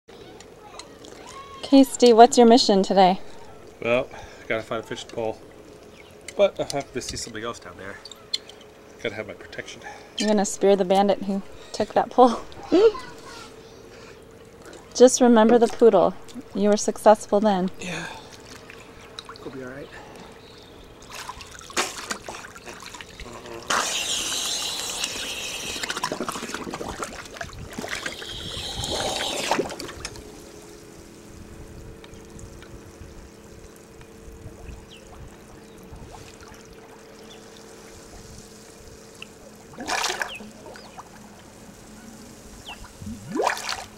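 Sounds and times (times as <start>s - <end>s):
faint steady hum: 0.1s - 43.9s
water lapping: 18.1s - 30.2s
water splashing: 21.0s - 30.2s, 39.6s - 41.2s, 42.9s - 43.9s
hissing bubbles: 21.4s - 30.7s, 42.6s - 43.9s.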